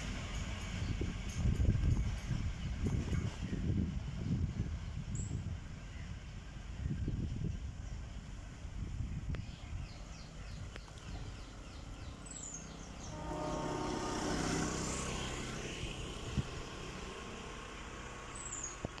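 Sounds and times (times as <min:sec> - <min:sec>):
diesel train rumbling: 0:00.0 - 0:19.0
birds chirping: 0:08.9 - 0:14.3.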